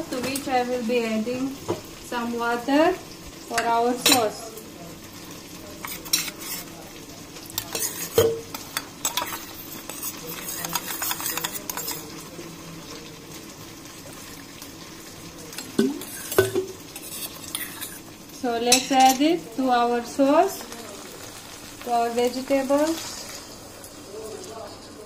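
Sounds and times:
spoon scraping metal bowl: 5.8 - 6.7, 7.5 - 12.1, 15.9 - 18.0.

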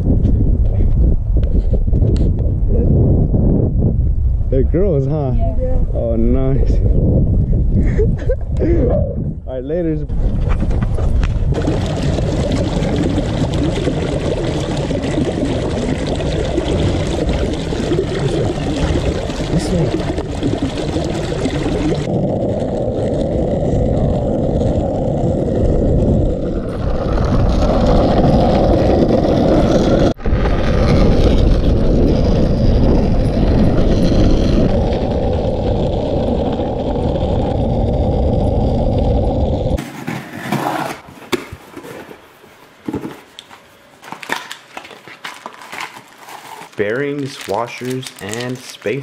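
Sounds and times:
rumbling and scraping on pavement: 4.6 - 21.2, 21.8 - 49.0.

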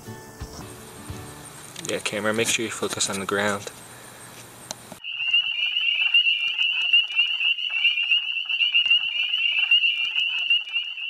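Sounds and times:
high-pitched animal trill: 5.0 - 11.0.

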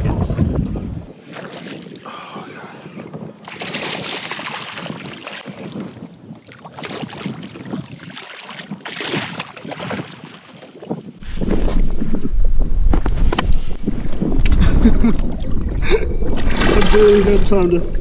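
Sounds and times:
fish thrashing and splashing: 14.1 - 17.7.

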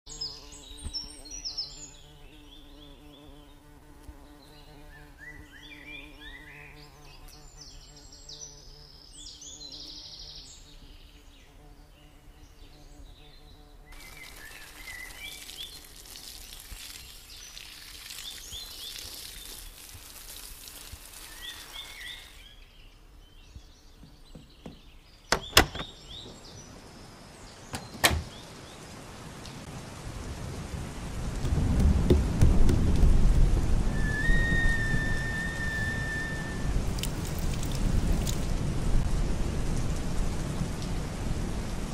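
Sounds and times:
low buzzing insect: 0.1 - 19.7, 31.6 - 38.4
small birds chirping: 0.1 - 29.6
rain: 13.9 - 22.7, 26.1 - 41.9
watering can pouring: 14.0 - 22.4, 36.8 - 38.5
sharp knocks: 24.0 - 26.4, 27.7 - 28.3, 31.4 - 33.5.

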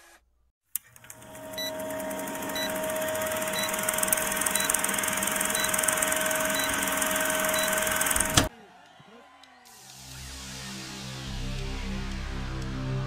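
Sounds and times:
film projector whirr and clatter: 0.8 - 8.5.

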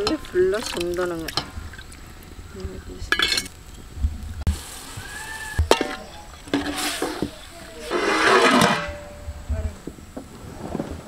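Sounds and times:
ladle stirring curry in pot: 5.6 - 9.0.

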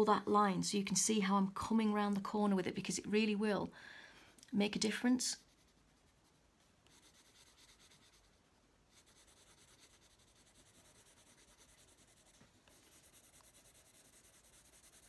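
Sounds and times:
coloured pencil scratching paper: 5.4 - 15.0.

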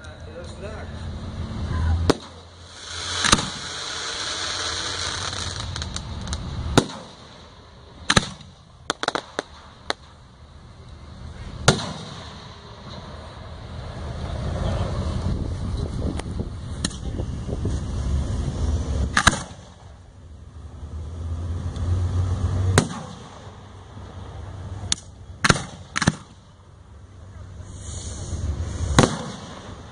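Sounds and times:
fireworks hissing crackle: 1.3 - 14.2, 14.8 - 20.0, 27.2 - 29.9
fireworks bangs: 1.9 - 10.2, 11.6 - 13.8, 17.9 - 20.0, 22.7 - 23.7, 27.8 - 29.9
small fireworks pops: 2.0 - 10.2, 16.1 - 17.1, 19.1 - 19.9, 22.8 - 23.5, 24.9 - 26.6, 28.9 - 29.9.

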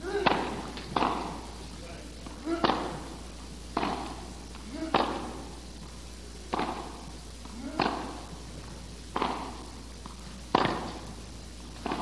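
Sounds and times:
tennis racket hitting ball: 0.0 - 1.5, 2.2 - 3.2, 3.8 - 4.2, 4.8 - 5.4, 6.5 - 8.4, 9.1 - 12.0.

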